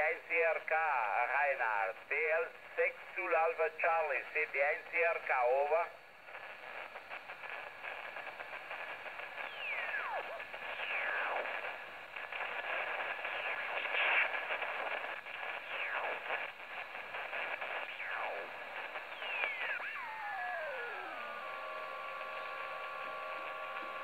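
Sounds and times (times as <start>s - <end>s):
radio band hiss: 0.0s - 24.0s
garbled radio signals and whistles: 7.9s - 24.0s.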